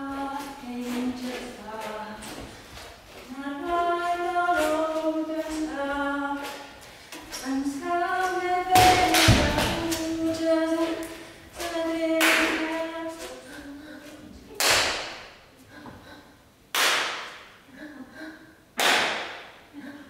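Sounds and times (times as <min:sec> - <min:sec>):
person singing unaccompanied: 0:00.0 - 0:02.5, 0:03.1 - 0:14.6.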